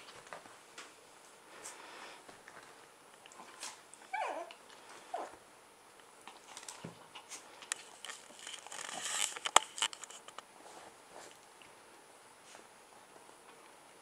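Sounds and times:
dog yelping: 4.1 - 4.5.

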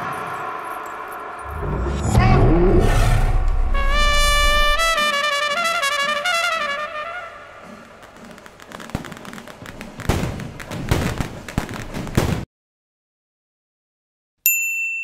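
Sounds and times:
dense crackling with pops: 3.8 - 12.4.

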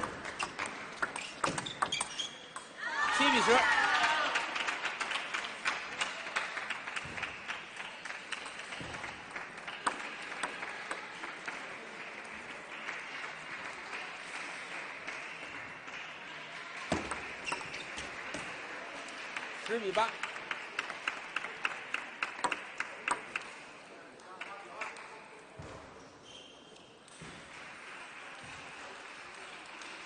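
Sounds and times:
ball bouncing on table: 0.0 - 2.7
applause and clapping: 3.0 - 25.3, 27.3 - 30.0.

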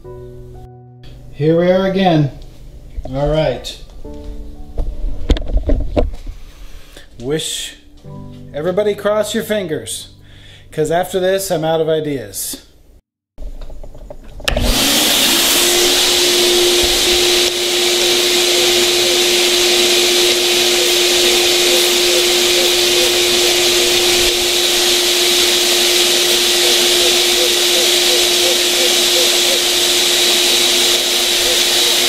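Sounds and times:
shop vacuum motor humming: 14.5 - 32.0.

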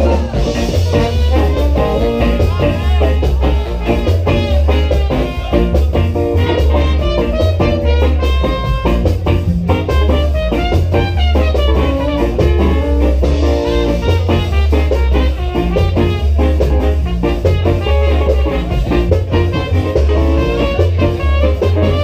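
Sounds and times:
live ska band playing: 0.0 - 22.0
trombone and trumpet melody: 0.0 - 22.0.

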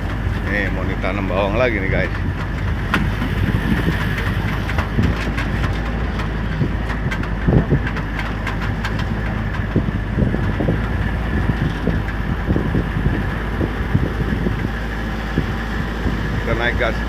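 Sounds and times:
knocks and rattles from bumps: 0.0 - 17.0.

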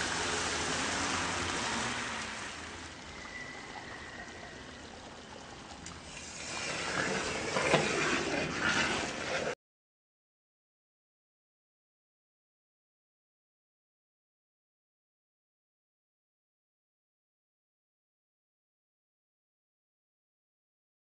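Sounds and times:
liquid pouring: 0.0 - 9.6
spatula scraping metal pan: 6.4 - 9.6.

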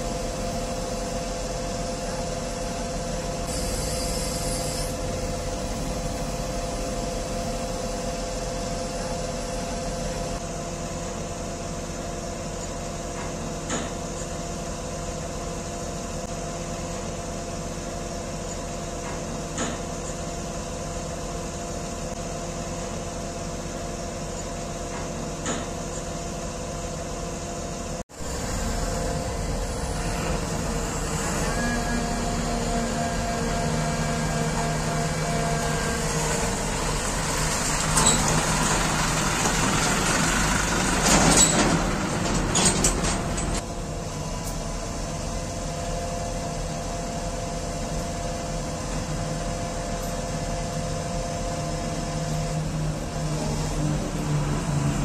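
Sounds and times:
engine and hydraulics humming: 0.0 - 55.0.

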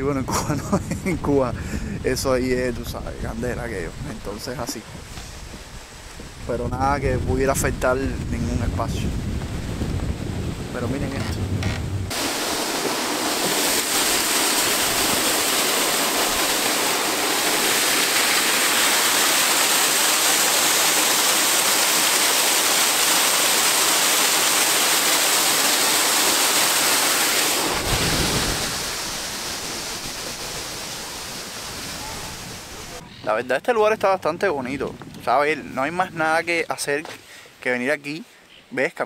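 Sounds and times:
water rushing over a dam: 12.1 - 33.0.

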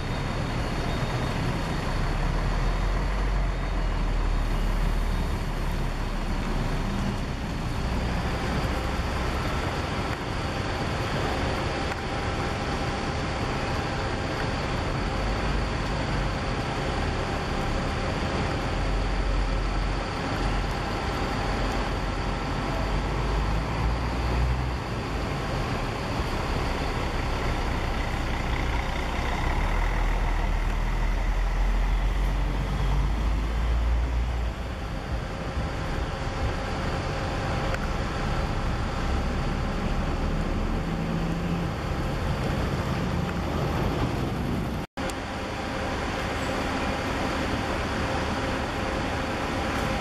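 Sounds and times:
coach diesel engine rumbling: 0.0 - 50.0.

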